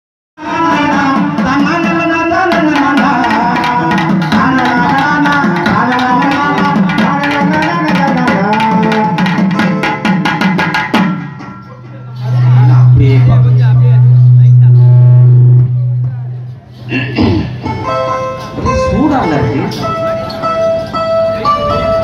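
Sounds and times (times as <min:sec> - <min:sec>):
hand drum strokes: 0:02.7 - 0:19.0
band playing gliding lead melody: 0:11.1 - 0:22.0.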